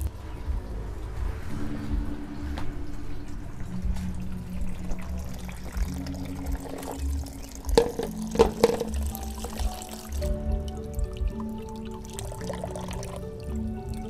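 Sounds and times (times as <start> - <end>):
water running into a plastic basin: 4.9 - 14.0
sharp knocks of pan and bowl: 7.8 - 9.6.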